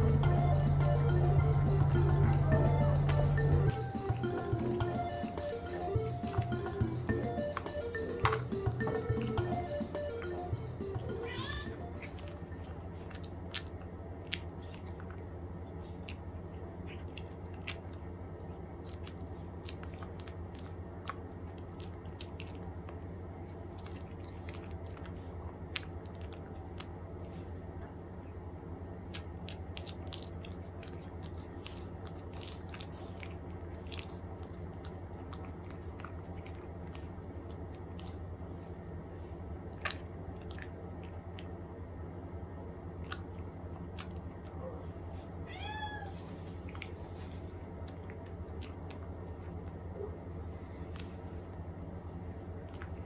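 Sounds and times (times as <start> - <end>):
cat chewing food: 0.0 - 27.8, 29.0 - 45.2, 46.2 - 49.9, 52.4 - 53.0
cat licking dish: 29.4 - 38.2.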